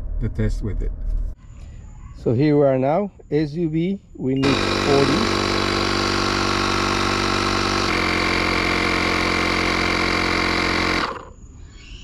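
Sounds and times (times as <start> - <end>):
tire inflator compressor running: 4.4 - 11.4.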